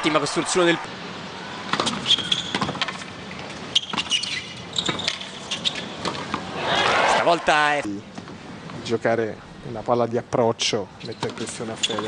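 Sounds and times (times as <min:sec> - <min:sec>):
low crowd hum: 0:00.0 - 0:11.1
shoes squeaking on court: 0:01.7 - 0:06.5, 0:11.0 - 0:12.0.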